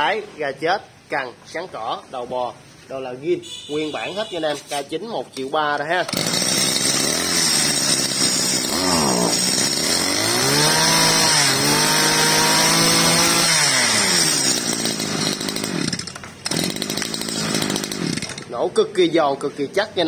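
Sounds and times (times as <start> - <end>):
brush cutter engine revving: 6.0 - 18.6.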